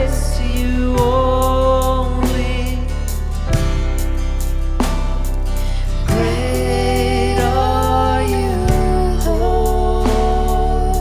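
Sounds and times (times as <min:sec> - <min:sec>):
girl singing: 0:00.0 - 0:03.0, 0:06.1 - 0:11.0
strummed acoustic guitar: 0:00.0 - 0:11.0
electronic drum kit: 0:01.0 - 0:11.0.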